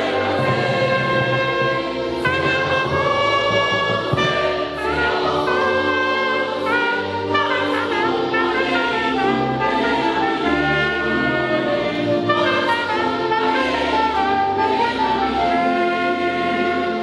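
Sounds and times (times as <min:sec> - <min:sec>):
electronic keyboard accompaniment: 0:00.0 - 0:17.0
trumpet melody: 0:00.0 - 0:17.0.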